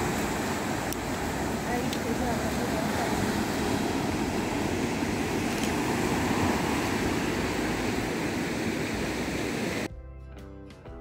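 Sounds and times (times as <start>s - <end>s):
ocean waves breaking on rocks: 0.0s - 9.9s.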